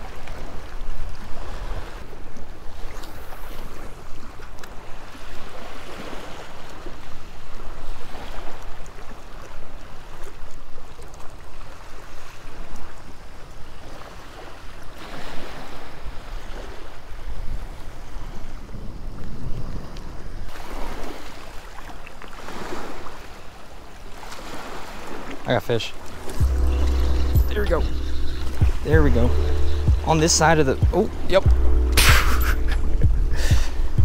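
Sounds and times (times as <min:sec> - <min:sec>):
wind rumbling on microphone: 0:00.0 - 0:21.4, 0:26.1 - 0:34.0
small waves washing against rocks: 0:13.8 - 0:29.4.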